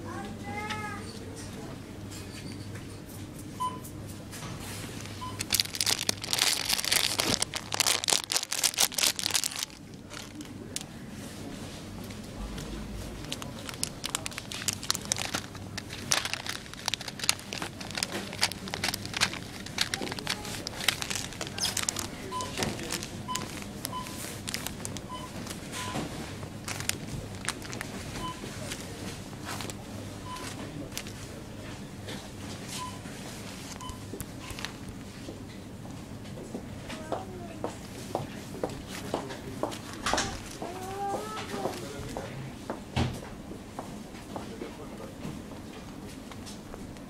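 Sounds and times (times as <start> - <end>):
crinkling and rustling: 4.3 - 10.9, 12.1 - 29.8, 30.4 - 31.3, 32.5 - 35.3, 38.3 - 42.2.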